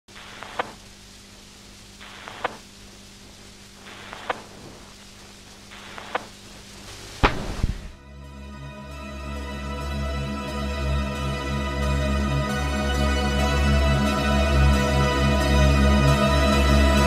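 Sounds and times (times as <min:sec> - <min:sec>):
faint steady hum: 0:00.0 - 0:17.0
static hiss: 0:00.0 - 0:17.0
deep boom with low rumble: 0:07.2 - 0:08.0.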